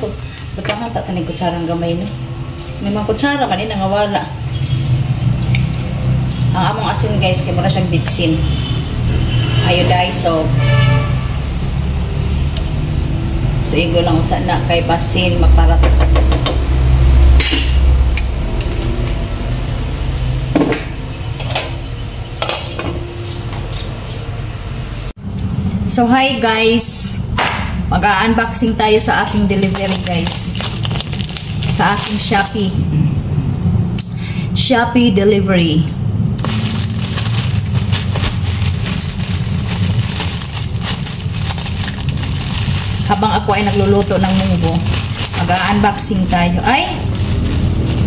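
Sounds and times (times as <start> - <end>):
plastic pouch crinkling: 29.2 - 32.6, 36.4 - 46.2, 46.8 - 48.0
low rumble: 35.9 - 48.0.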